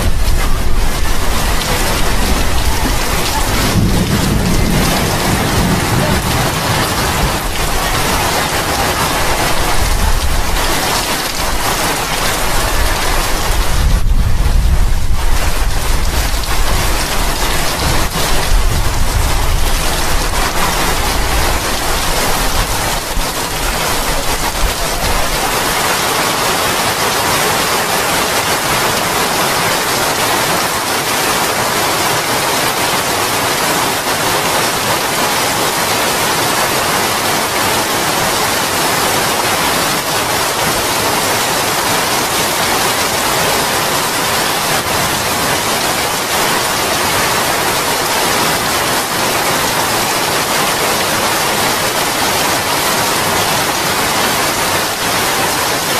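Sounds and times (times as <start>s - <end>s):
heavy rain pouring: 0.0s - 55.9s
low rumbling: 12.5s - 25.5s.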